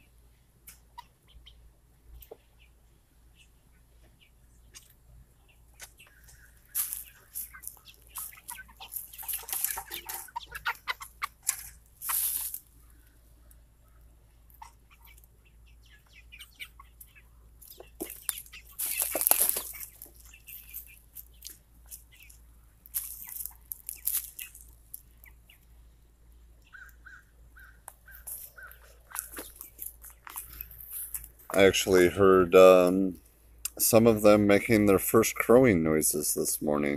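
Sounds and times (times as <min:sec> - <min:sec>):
chickens clucking: 0:00.0 - 0:36.9
short chicken calls: 0:05.4 - 0:22.4, 0:26.6 - 0:29.8
wings rustling and flapping: 0:05.8 - 0:12.7, 0:17.6 - 0:25.1, 0:28.1 - 0:31.5.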